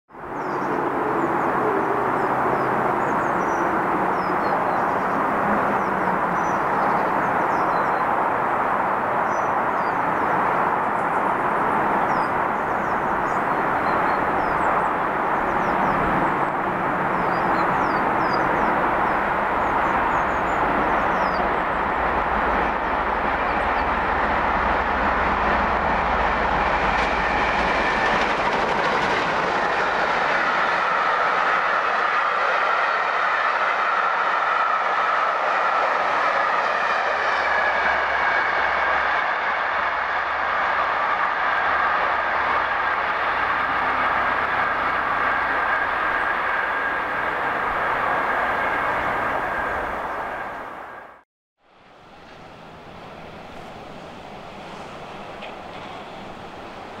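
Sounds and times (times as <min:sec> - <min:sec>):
deep train rumble: 0:00.1 - 0:57.0
steam train rushing past: 0:00.2 - 0:57.0.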